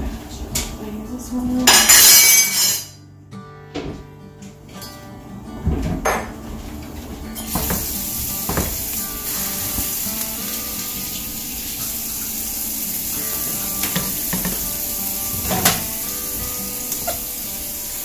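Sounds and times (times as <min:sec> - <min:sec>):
pot of water boiling: 0:07.5 - 0:18.0.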